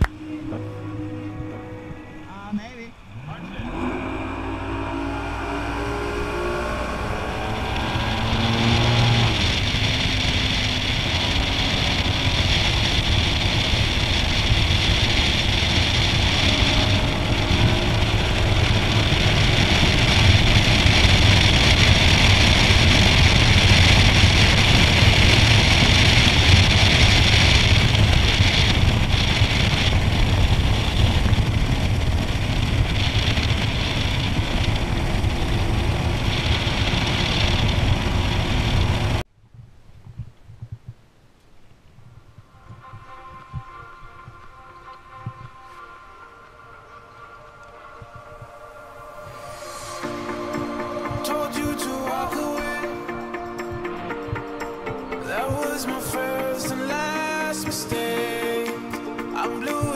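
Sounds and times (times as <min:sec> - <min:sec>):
outboard motor running: 0:00.0 - 0:39.2.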